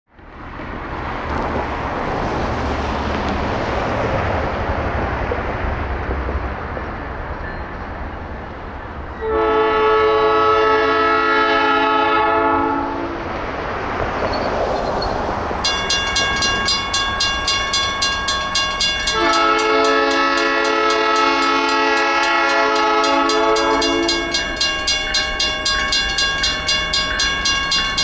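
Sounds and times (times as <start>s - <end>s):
train rumble and rail noise: 0.1s - 28.0s
locomotive air horn blast: 9.2s - 13.2s, 19.1s - 24.7s.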